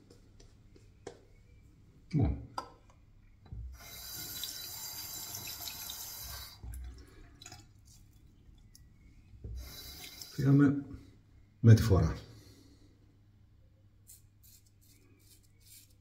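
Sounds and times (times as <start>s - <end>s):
tap water running into sink: 3.7s - 7.9s.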